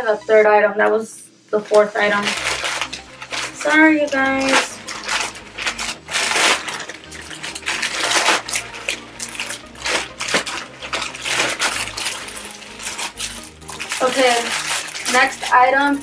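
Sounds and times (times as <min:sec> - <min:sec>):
plastic crinkling and rustling: 0:01.6 - 0:16.0.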